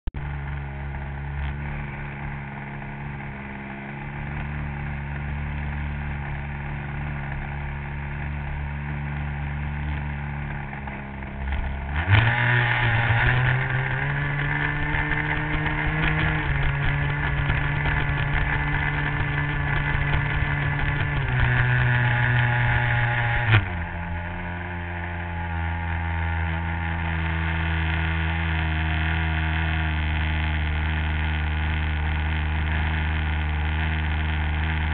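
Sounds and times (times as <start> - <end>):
model airplane engine running: 13.3 - 22.8, 27.0 - 34.9.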